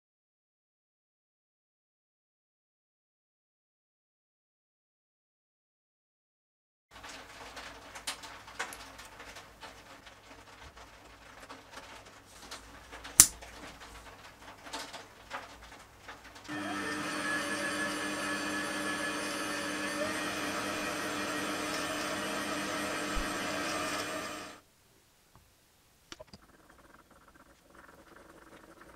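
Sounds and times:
drill boring into steel: 16.5s - 24.6s
metal lathe running: 16.5s - 24.6s.

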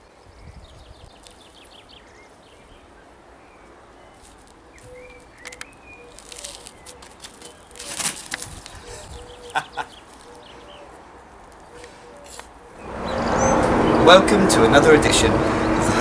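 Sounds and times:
birds chirping: 0.0s - 16.0s
sharp clicks and rustles: 4.2s - 10.5s.

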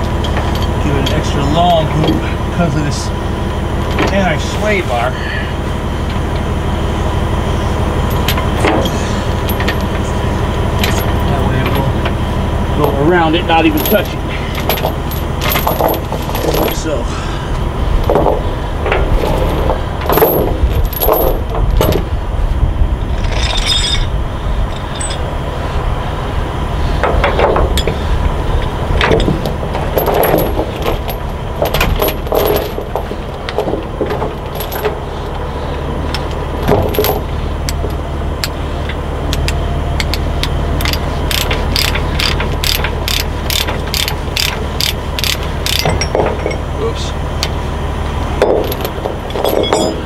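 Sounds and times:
truck engine idling: 0.0s - 23.4s, 24.0s - 50.0s
metal clanks and knocks: 8.1s - 10.2s, 12.8s - 17.0s, 18.0s - 22.1s, 27.0s - 28.0s, 28.6s - 35.0s, 36.1s - 38.6s, 40.8s - 46.7s, 48.4s - 50.0s
sharp metallic clicks: 39.3s - 46.1s.

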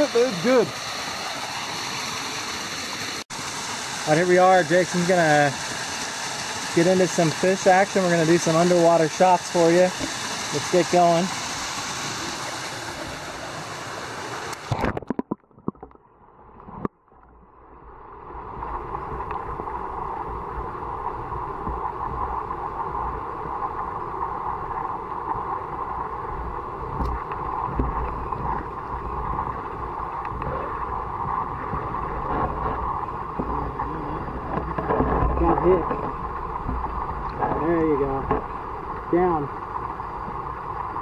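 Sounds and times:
creek rushing over cascade: 0.0s - 15.0s, 18.3s - 41.0s
muffled underwater stream rushing: 0.0s - 41.0s
splashes and knocks: 14.6s - 16.0s, 27.0s - 38.6s.

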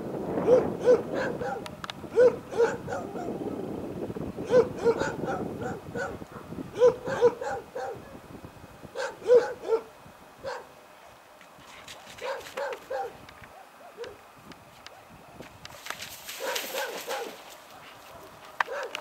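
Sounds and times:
dog barking: 0.4s - 3.4s, 4.4s - 8.2s, 9.0s - 10.7s, 12.2s - 14.2s, 14.9s - 15.4s, 16.4s - 19.0s.

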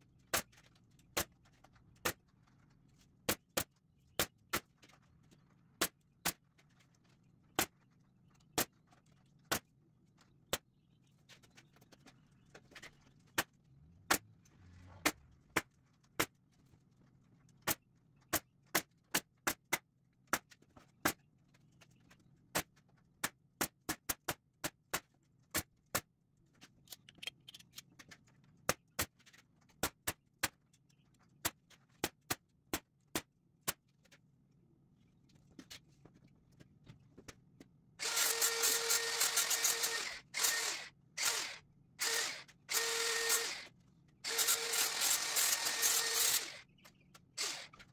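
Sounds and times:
pneumatic staple gun firing: 38.0s - 43.7s, 44.3s - 46.6s, 47.4s - 47.9s.

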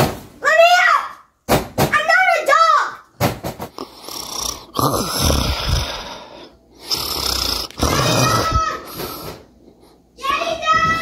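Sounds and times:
person snoring: 3.8s - 9.3s.

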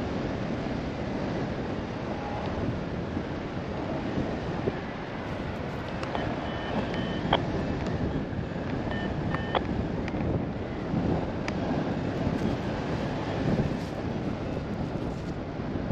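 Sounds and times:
wind rushing over microphone: 0.0s - 15.9s
high electronic beeps: 6.1s - 7.4s, 8.9s - 9.6s.

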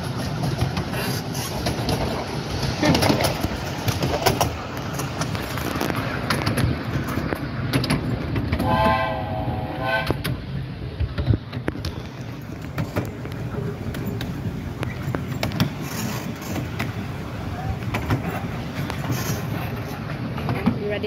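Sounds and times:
moving train rumble: 0.0s - 21.0s
wheels clicking on track: 0.0s - 21.0s
locomotive whistle blast: 8.6s - 10.2s.

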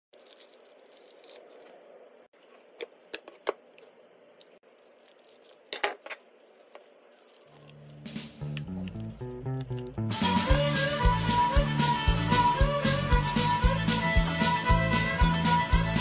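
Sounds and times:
music: 8.0s - 16.0s.

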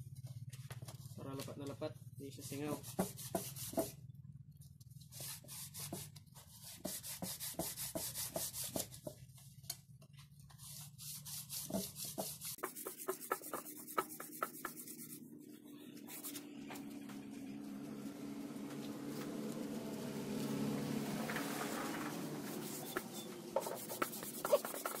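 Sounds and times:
metal rubbing on sandpaper: 2.3s - 3.9s, 5.0s - 9.1s, 10.5s - 16.5s, 22.1s - 25.0s.

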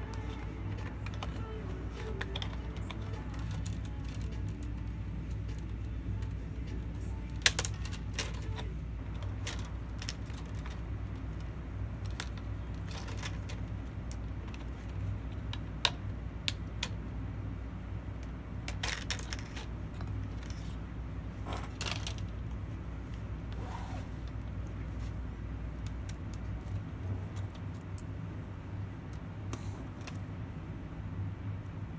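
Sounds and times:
plastic clips snapping: 0.0s - 17.0s
steady low hum: 0.0s - 31.9s.

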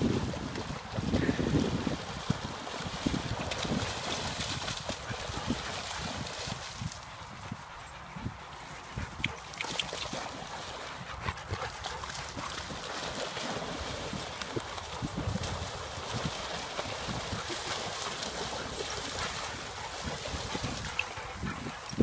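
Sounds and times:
dogs splashing in water: 0.0s - 7.0s, 9.0s - 22.0s.

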